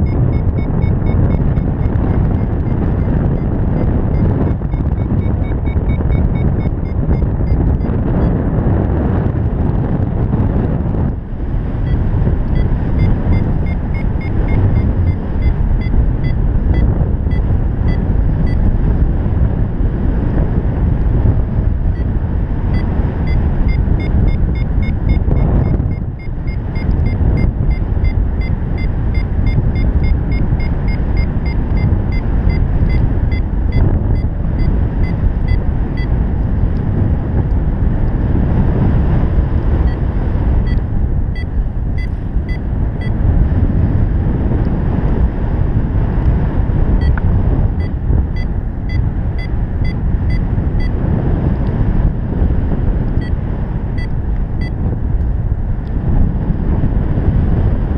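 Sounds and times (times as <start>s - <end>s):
variometer rapid high beeps: 0.0s - 8.4s, 11.8s - 18.7s, 22.7s - 36.1s, 40.6s - 43.2s, 47.0s - 51.0s
wind noise on microphone: 0.0s - 57.9s.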